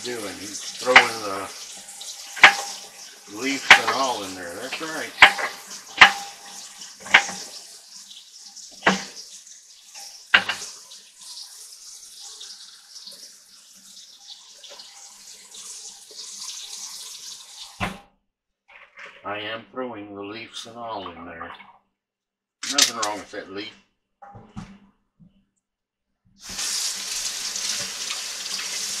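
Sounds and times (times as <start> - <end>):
faucet running into metal sink: 0.0 - 17.9, 26.4 - 29.0
sharp knocks: 2.4 - 2.8, 8.8 - 9.1.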